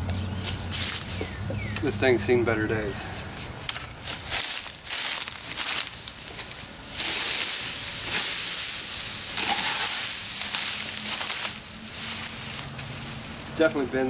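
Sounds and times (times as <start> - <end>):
loud steady hiss: 4.3 - 14.0.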